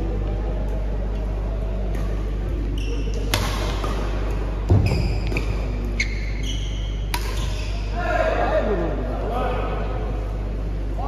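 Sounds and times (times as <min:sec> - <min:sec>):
shoes squeaking on court: 0:02.6 - 0:03.4, 0:04.7 - 0:08.0
racket hitting shuttlecock: 0:03.1 - 0:05.8, 0:07.0 - 0:07.8.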